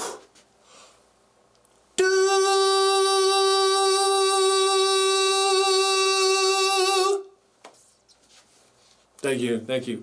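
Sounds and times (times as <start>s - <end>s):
man singing high note: 2.0s - 7.4s.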